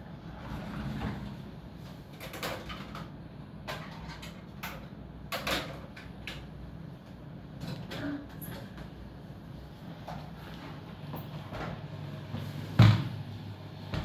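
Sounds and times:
wardrobe sliding doors scraping: 0.2s - 1.6s
steady low hum: 3.0s - 14.0s.

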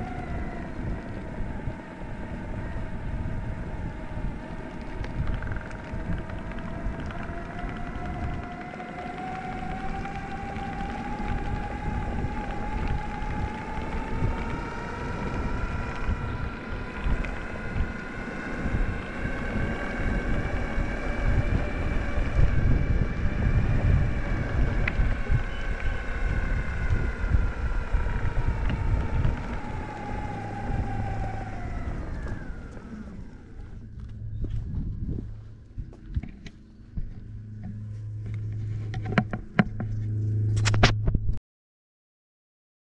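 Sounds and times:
electric skateboard motors whining: 0.0s - 41.2s
wheels rumbling on rough ground: 0.0s - 41.4s.

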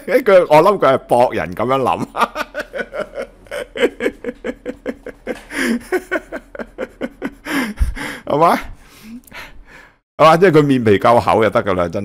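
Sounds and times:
man laughing: 1.8s - 8.7s.

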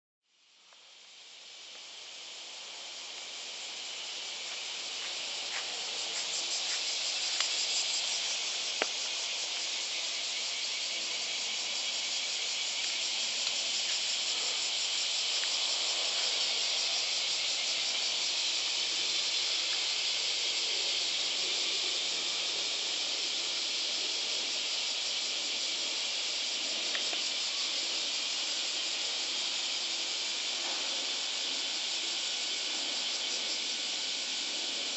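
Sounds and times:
cicadas buzzing: 0.3s - 34.9s
faint ticks: 8.8s - 9.7s, 26.9s - 27.3s.

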